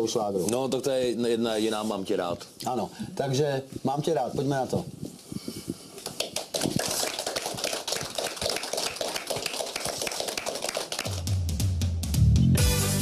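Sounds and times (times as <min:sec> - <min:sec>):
audience clapping: 0:06.0 - 0:11.7
band music low notes: 0:11.2 - 0:13.0.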